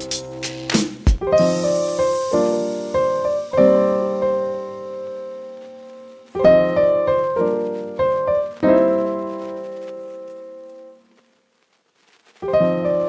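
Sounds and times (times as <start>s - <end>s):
slow solo piano: 1.2s - 11.2s, 12.4s - 13.0s.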